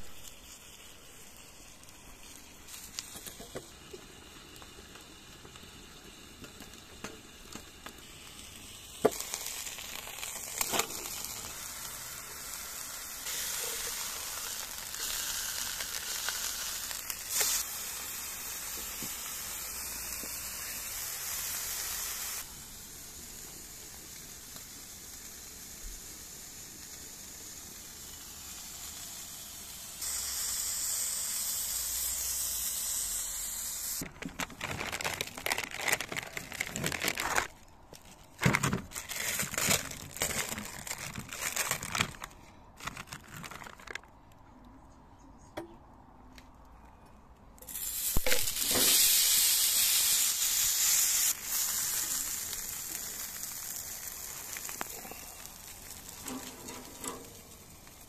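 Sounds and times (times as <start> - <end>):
food sizzling in pan: 0.0 - 34.0, 47.7 - 58.0.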